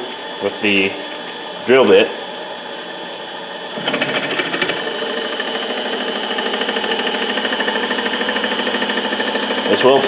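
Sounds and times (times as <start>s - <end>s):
lathe gear train whirring: 0.0s - 10.0s
drill bit chattering in metal: 3.8s - 10.0s.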